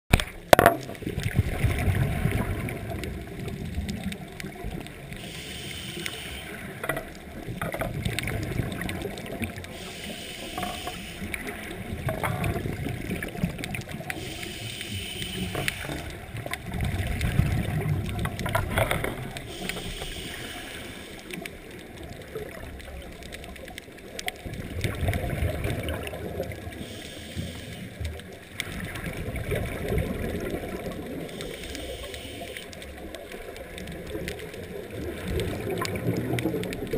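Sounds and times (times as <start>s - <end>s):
exhaust bubbles rumbling: 0.7s - 5.0s, 15.4s - 19.6s, 28.7s - 31.4s
regulator hiss on inhale: 5.0s - 7.1s, 9.5s - 11.8s, 14.0s - 16.4s, 19.2s - 21.8s, 26.6s - 28.2s, 31.1s - 33.1s.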